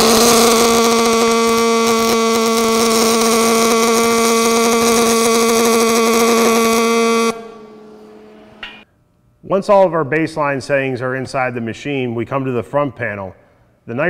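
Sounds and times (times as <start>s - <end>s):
welding arc buzzing and crackling: 0.0s - 8.8s.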